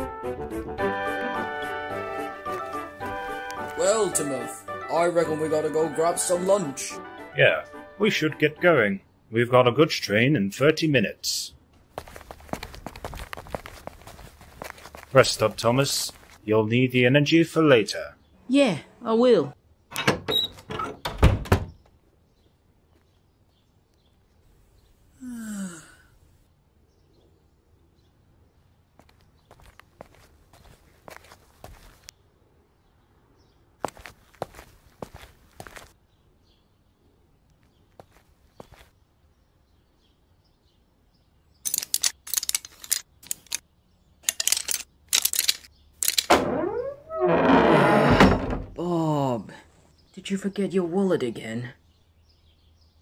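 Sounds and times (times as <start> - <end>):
person sighing: 25.1 - 26.2
padlock chain rattling: 41.6 - 43.6, 44.2 - 46.3.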